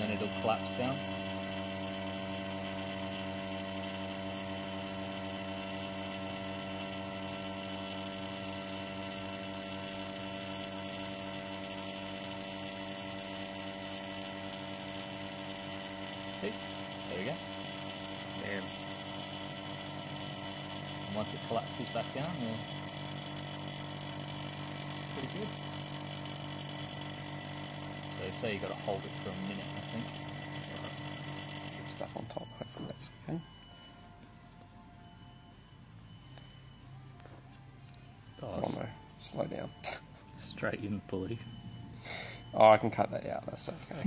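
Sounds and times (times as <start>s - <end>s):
vacuum pump humming: 0.0s - 34.2s.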